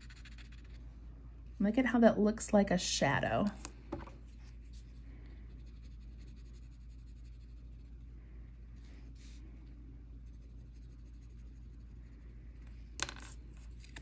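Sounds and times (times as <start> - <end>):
pencil scratching on paper: 0.0 - 0.8, 5.5 - 7.9, 10.2 - 12.2
faint low hum: 0.0 - 14.0.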